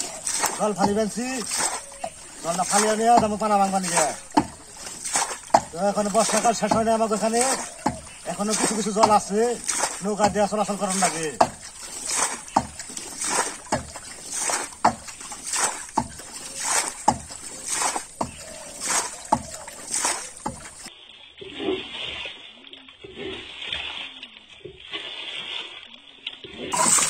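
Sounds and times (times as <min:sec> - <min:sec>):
water scooped and splashed: 0:00.0 - 0:27.0.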